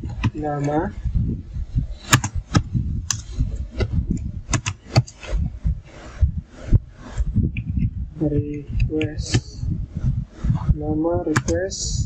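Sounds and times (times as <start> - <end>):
keyboard key clicks: 4.5 - 5.2.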